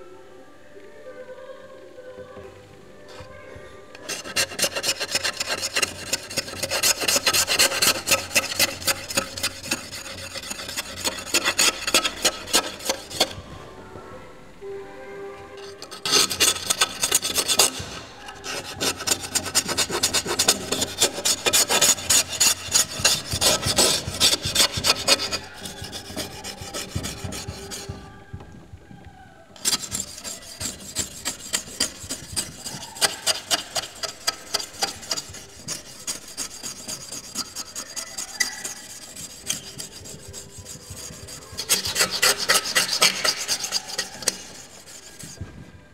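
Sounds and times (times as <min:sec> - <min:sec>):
rapid rasping scraping strokes: 0:04.0 - 0:13.4, 0:15.6 - 0:28.2, 0:29.6 - 0:45.4.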